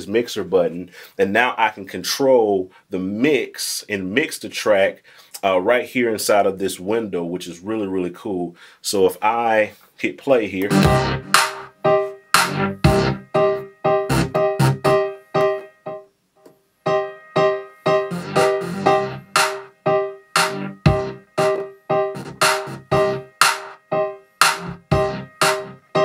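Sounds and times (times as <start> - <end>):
piano pattern over drums: 10.7 - 16.1, 16.8 - 26.0.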